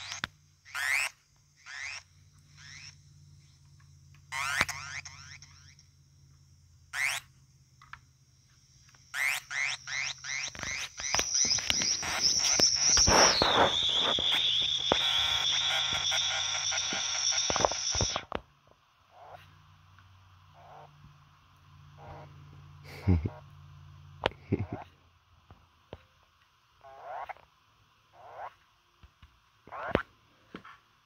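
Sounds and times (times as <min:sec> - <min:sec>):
synthesizer chirps and squeal: 0:00.0 - 0:03.5, 0:09.2 - 0:18.3.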